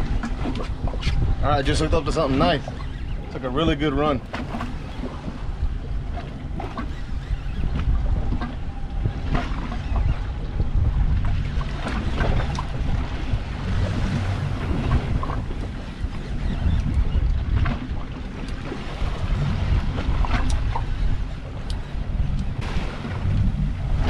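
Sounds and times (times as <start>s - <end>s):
water sloshing against hull: 0.0s - 24.0s
wind buffeting microphone: 0.0s - 24.0s.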